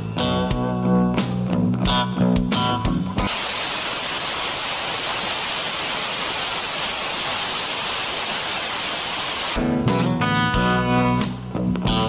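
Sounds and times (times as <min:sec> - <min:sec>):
blues guitar music: 0:00.1 - 0:03.3, 0:09.6 - 0:12.0
television static hiss: 0:03.3 - 0:09.6.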